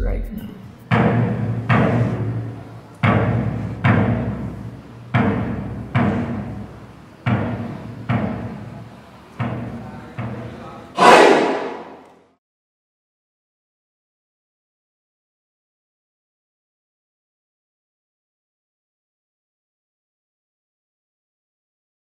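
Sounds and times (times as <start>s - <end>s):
slow deep drum beats: 0.0s - 10.6s
cymbal crash: 11.0s - 12.0s.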